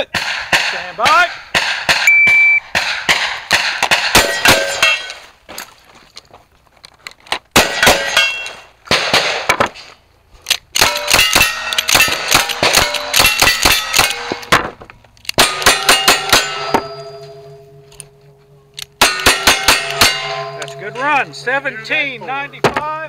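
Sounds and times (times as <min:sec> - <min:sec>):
bullets clanging on steel targets: 0:00.0 - 0:05.3, 0:07.6 - 0:09.5, 0:10.8 - 0:14.6, 0:15.3 - 0:23.0
rifle shots: 0:01.5 - 0:05.1, 0:07.5 - 0:09.6, 0:10.8 - 0:14.6, 0:19.0 - 0:20.8
shotgun shot: 0:08.9 - 0:09.6.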